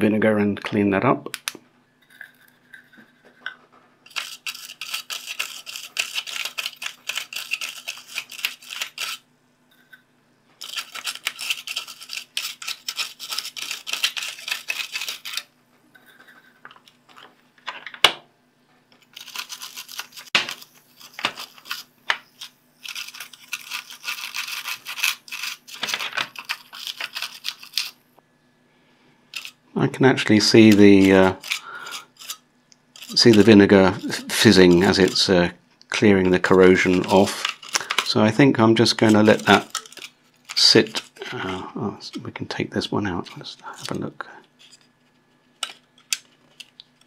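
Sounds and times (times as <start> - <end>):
toothbrush scrubbing metal: 4.1 - 9.9, 10.6 - 16.7, 19.0 - 28.0, 29.4 - 29.6, 30.5 - 35.4, 36.1 - 38.1, 38.8 - 41.6.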